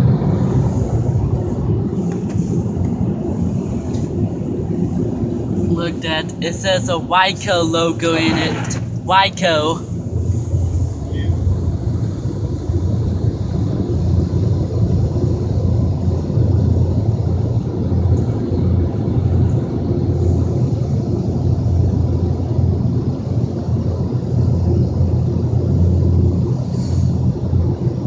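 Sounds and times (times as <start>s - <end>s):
automatic car wash rumbling: 0.0s - 28.0s
hiss of wash spray: 0.3s - 4.2s, 26.6s - 27.3s.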